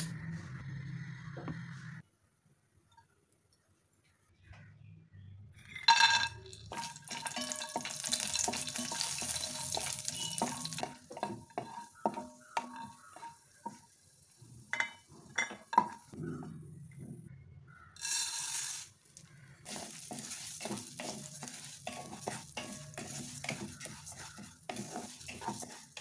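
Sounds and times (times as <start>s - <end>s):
nuts sizzling in hot fat: 6.6s - 16.1s, 18.0s - 26.0s
wooden spatula scraping a pan: 6.7s - 14.0s, 18.0s - 18.9s, 19.7s - 26.0s.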